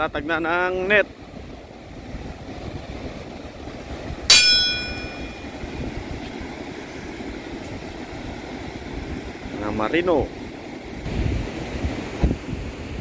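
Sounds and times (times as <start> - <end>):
wind: 0.0 - 13.0
metallic ding: 4.3 - 5.5.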